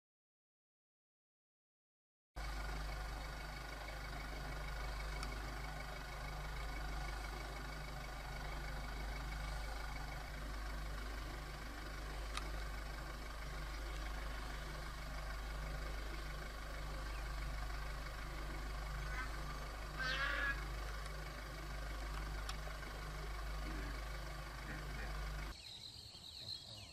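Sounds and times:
vehicle engine idling: 2.4 - 25.6
faint click: 5.2 - 5.4.

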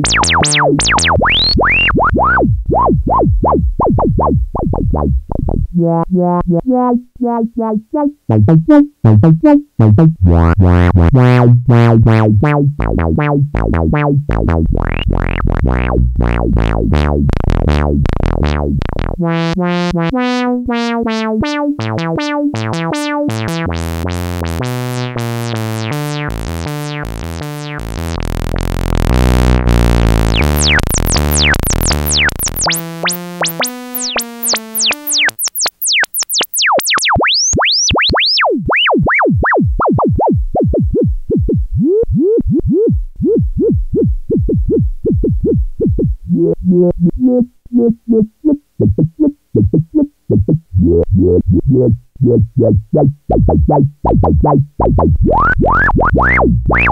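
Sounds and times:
sweeping saturated synth pattern: 0.0 - 1.9, 16.5 - 37.6, 50.7 - 53.5.

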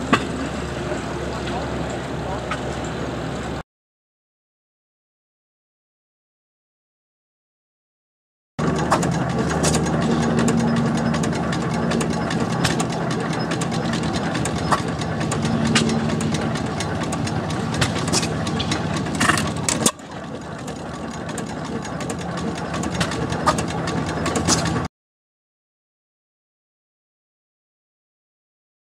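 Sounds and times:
engine pops: 8.6 - 24.9
stationary gas engine running: 8.6 - 24.9.

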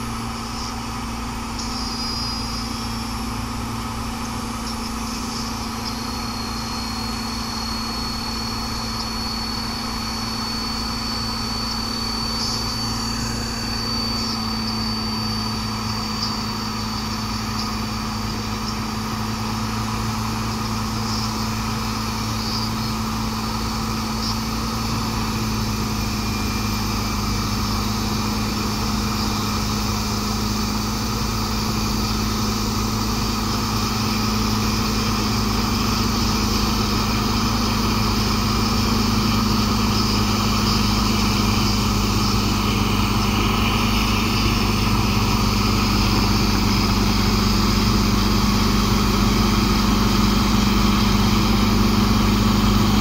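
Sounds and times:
bulldozer diesel engine running: 0.0 - 53.0.

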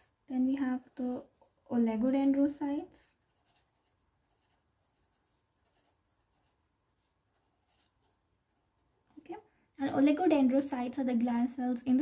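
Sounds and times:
felt-tip pen scratching on paper: 3.2 - 8.8.

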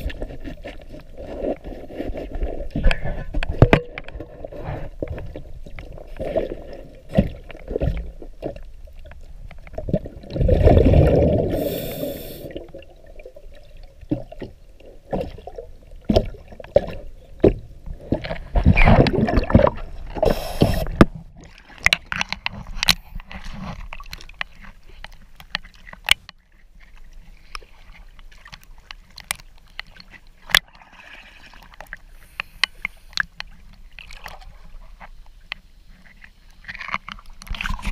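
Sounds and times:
muffled underwater clicks and knocks: 0.0 - 10.0, 14.0 - 30.8, 31.6 - 37.9
underwater gurgling bubbles: 0.0 - 24.4.

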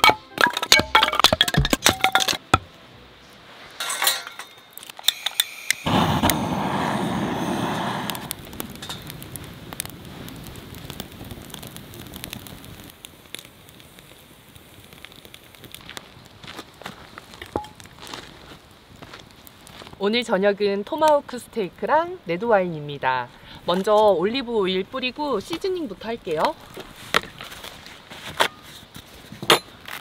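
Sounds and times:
wood fire crackling: 0.0 - 30.0
loud rushing noise: 5.9 - 8.4.

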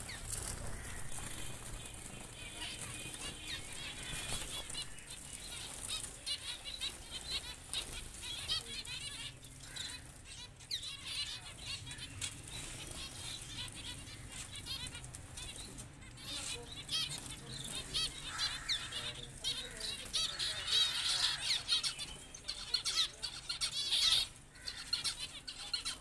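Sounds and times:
wings fluttering: 0.0 - 8.8.

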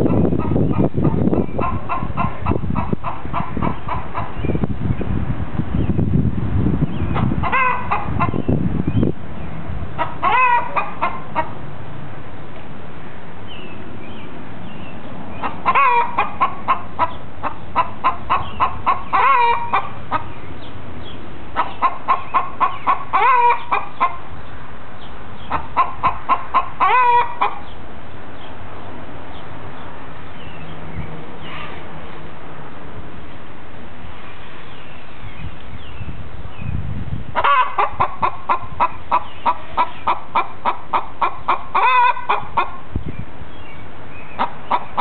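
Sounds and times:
hen clucking and squawking: 0.0 - 4.5, 7.1 - 8.6, 10.0 - 11.6, 15.3 - 20.5, 21.5 - 24.3, 25.4 - 27.8, 37.4 - 42.9, 44.3 - 45.0.

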